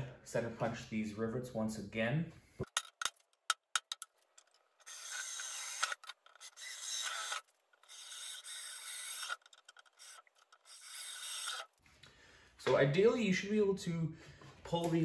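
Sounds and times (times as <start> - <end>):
cordless drill grinding through rivets: 3.9 - 11.8.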